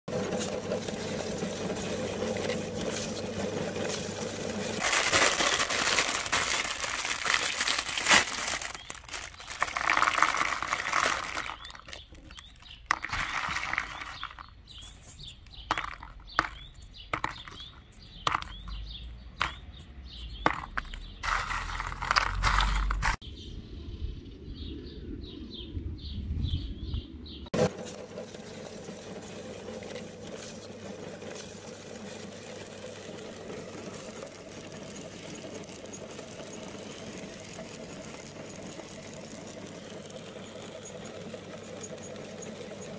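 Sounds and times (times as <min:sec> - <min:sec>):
cellophane bag crinkling: 0:00.8 - 0:16.6, 0:20.5 - 0:23.2
candy eggs clicking in a bowl: 0:04.8 - 0:14.6, 0:15.4 - 0:18.8.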